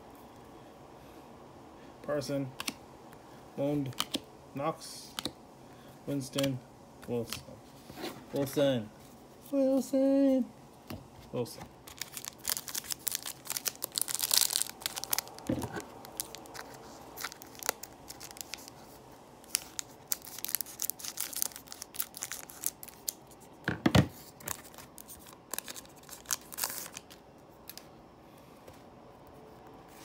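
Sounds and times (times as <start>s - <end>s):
cards shuffling: 3.8s - 4.2s, 11.3s - 23.2s
foil wrapper tearing and crinkling: 11.8s - 18.8s, 19.4s - 23.3s, 24.3s - 27.2s.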